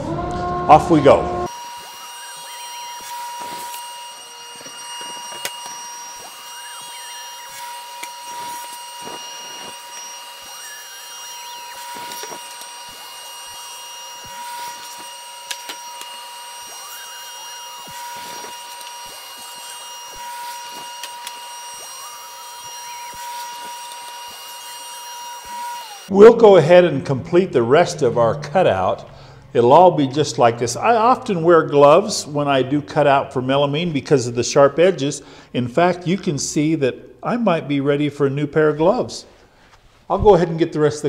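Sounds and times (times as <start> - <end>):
dust collector running: 0.0 - 32.4
table saw cutting board: 0.0 - 33.3.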